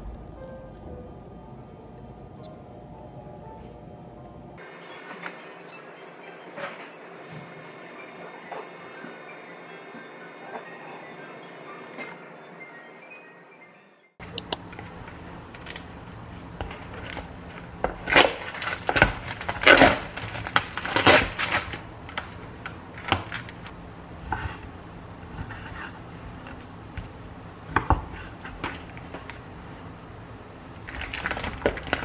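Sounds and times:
rustling or crunching: 30.8s - 32.0s.

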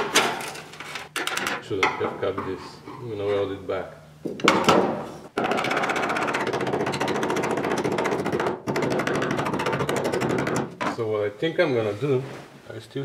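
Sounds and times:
air chisel hammering sheet metal: 5.4s - 10.6s.

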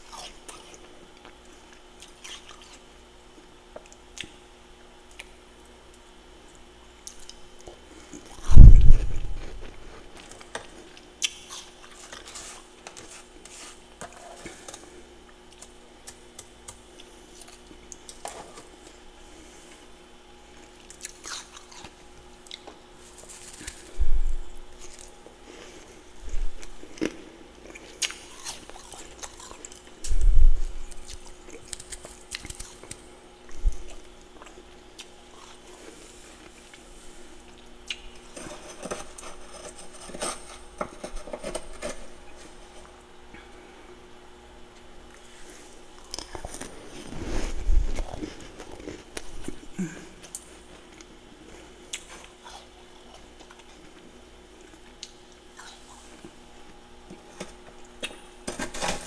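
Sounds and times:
faint steady hum: 0.0s - 59.0s
chewing frost: 26.6s - 30.1s, 31.0s - 39.7s.

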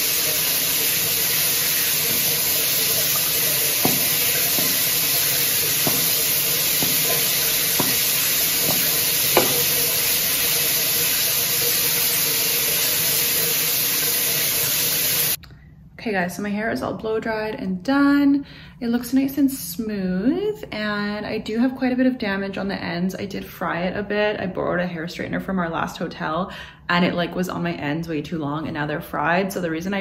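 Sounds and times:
shower water running: 0.0s - 15.4s.

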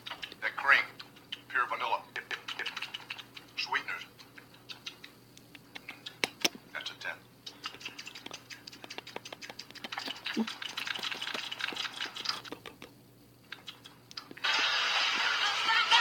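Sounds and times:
man slurping and mouth smacking: 7.4s - 14.4s.

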